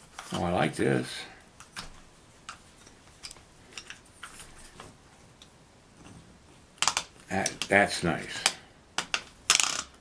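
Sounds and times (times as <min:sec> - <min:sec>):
faint clicks of vise parts: 0:01.4 - 0:06.2.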